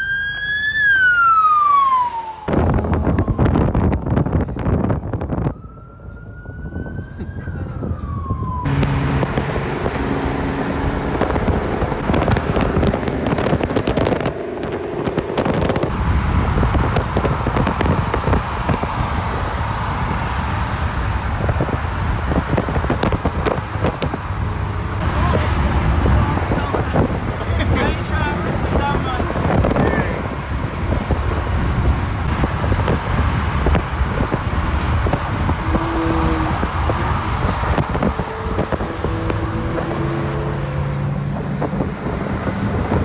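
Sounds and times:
police siren wailing: 0.0 - 9.4, 33.7 - 41.2
cars driving past: 7.8 - 43.0.

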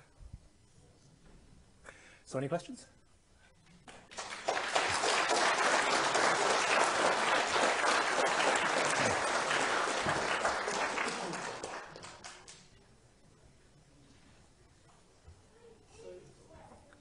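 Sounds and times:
audience applauding: 3.9 - 12.7.

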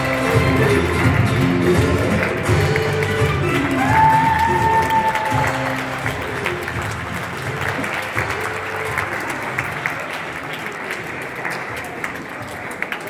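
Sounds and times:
audience applauding: 0.0 - 13.0.

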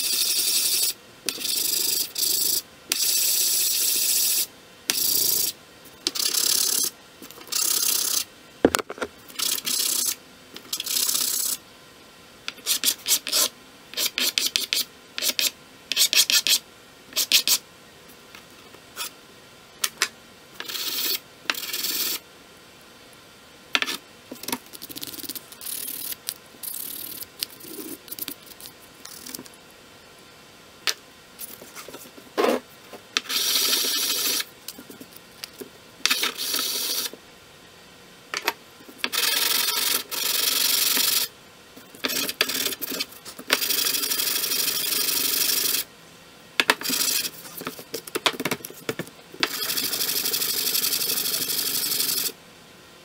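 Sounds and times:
metal scraping on sandpaper: 12.6 - 16.6.

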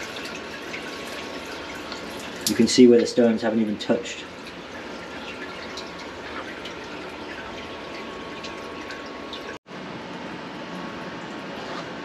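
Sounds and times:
oil trickling and dripping: 0.0 - 9.6
steady machine hum: 0.0 - 12.0.

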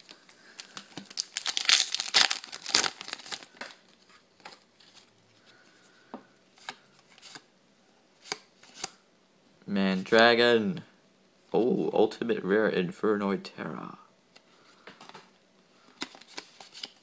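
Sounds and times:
foil wrapper tearing and crinkling: 0.6 - 3.6.

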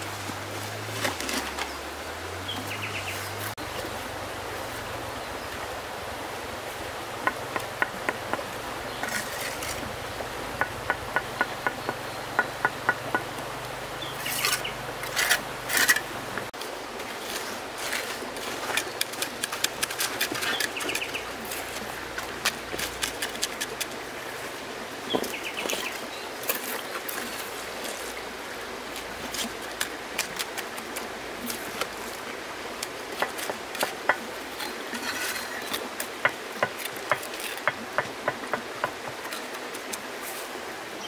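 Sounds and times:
trowel tapping clay bricks: 7.2 - 9.4, 10.6 - 13.4, 36.2 - 39.4
trowel scraping mortar: 9.0 - 9.9, 14.2 - 16.1, 33.2 - 35.9.

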